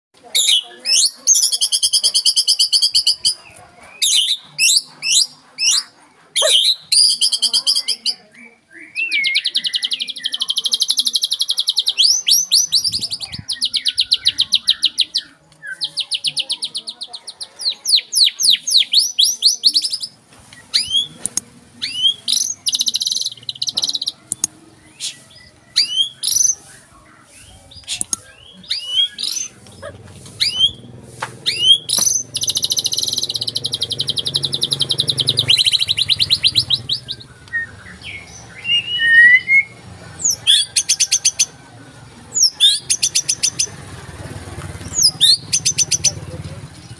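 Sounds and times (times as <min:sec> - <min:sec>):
bird singing trills and whistles: 0:00.3 - 0:41.5, 0:42.3 - 0:43.8, 0:44.9 - 0:46.9.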